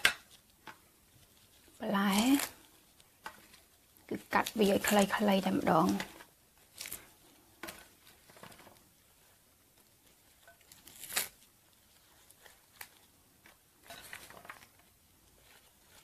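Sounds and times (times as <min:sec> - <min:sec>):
lettuce leaves tearing: 0:01.3 - 0:07.1, 0:10.0 - 0:13.1.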